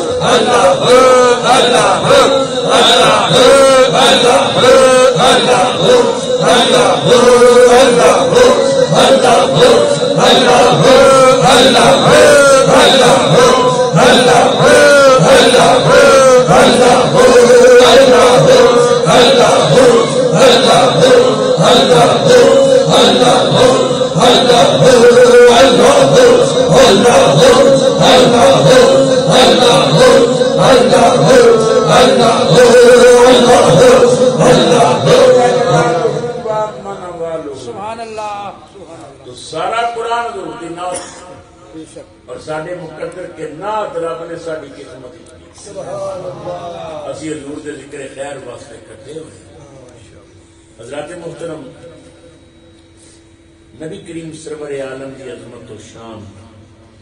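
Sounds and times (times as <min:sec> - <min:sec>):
men chanting through a microphone: 0:00.0 - 0:49.6.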